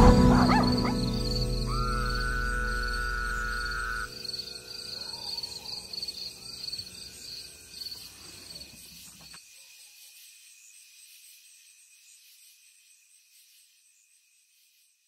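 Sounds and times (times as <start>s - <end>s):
held music note: 0.0s - 4.2s
crickets chirping: 0.0s - 15.0s
faint outdoor ambience: 0.0s - 15.0s.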